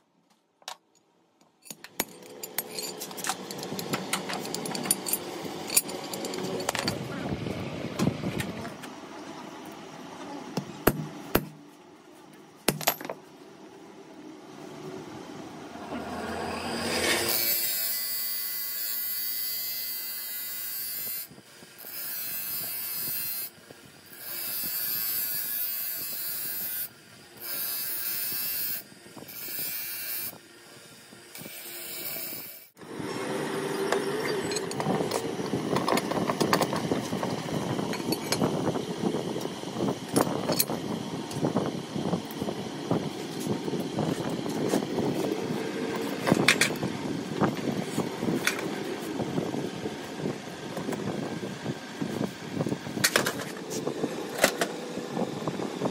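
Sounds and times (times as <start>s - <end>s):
steel parts clinking and scraping: 0.7s - 7.1s, 12.7s - 13.3s, 34.0s - 38.6s
grinding wheel on steel: 1.8s - 7.3s, 15.6s - 23.5s, 31.3s - 41.5s.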